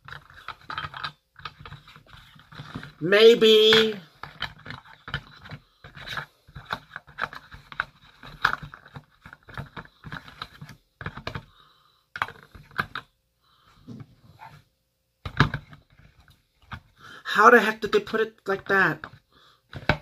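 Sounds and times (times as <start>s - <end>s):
packaging taps and scrapes: 0.0s - 3.0s, 3.6s - 13.1s, 19.0s - 20.0s.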